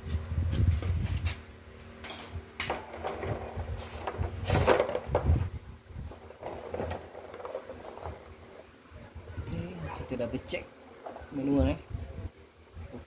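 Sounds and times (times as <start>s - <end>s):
tools and parts handled: 2.0s - 5.3s.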